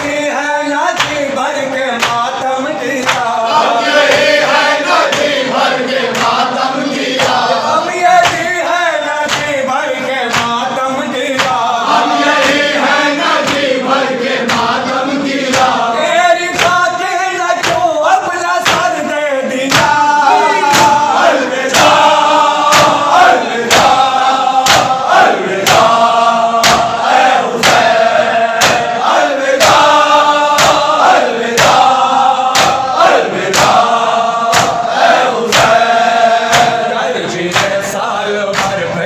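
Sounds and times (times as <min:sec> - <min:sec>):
men chanting in unison: 0:00.0 - 0:39.0
hands slapping chests: 0:00.9 - 0:01.4, 0:02.0 - 0:08.6, 0:09.2 - 0:09.6, 0:10.3 - 0:10.7, 0:11.3 - 0:14.8, 0:15.4 - 0:15.8, 0:17.6 - 0:18.0, 0:18.6 - 0:19.0, 0:19.6 - 0:28.0, 0:28.6 - 0:36.9, 0:37.5 - 0:39.0.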